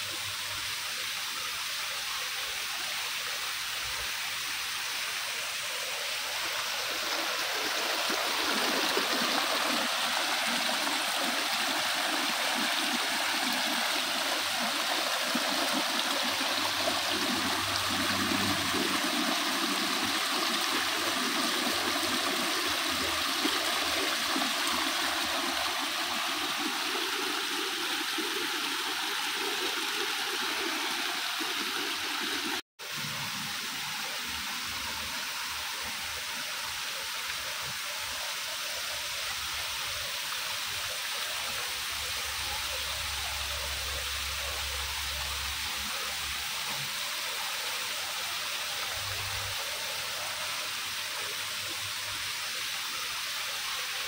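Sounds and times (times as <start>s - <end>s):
waterfall pouring into pond: 0.0s - 54.0s
water splashing over rocks: 6.4s - 34.5s.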